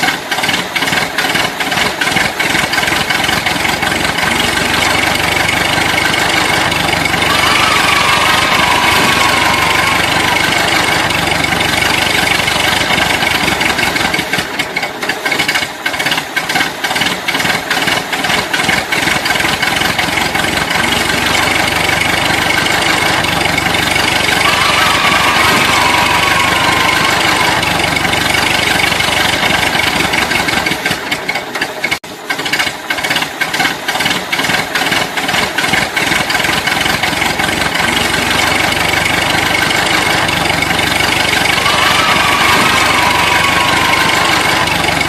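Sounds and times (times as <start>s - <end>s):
tractor engine idling: 0.0s - 45.0s.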